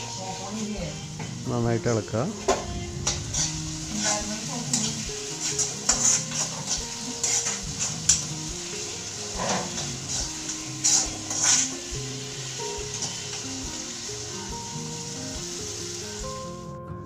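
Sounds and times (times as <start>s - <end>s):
onions sizzling in hot oil: 0.0s - 16.8s
spoon scraping a pan: 3.4s - 8.5s, 9.2s - 11.9s.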